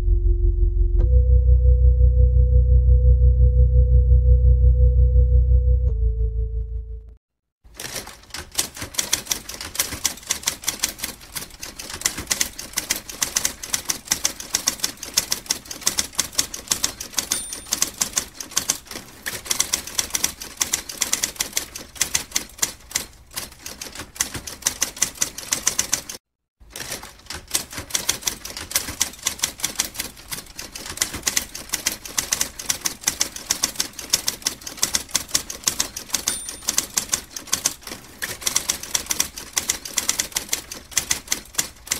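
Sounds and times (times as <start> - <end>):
typewriter keys clacking: 7.7 - 41.9.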